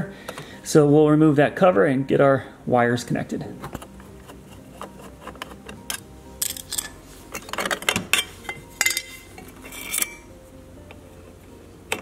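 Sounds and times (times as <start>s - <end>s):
screwdriver scraping metal: 3.8s - 8.6s, 9.6s - 10.2s.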